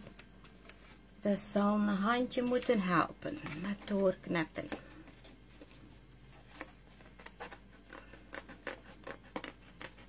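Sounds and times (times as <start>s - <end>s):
scissors snipping cardstock: 7.2s - 10.0s.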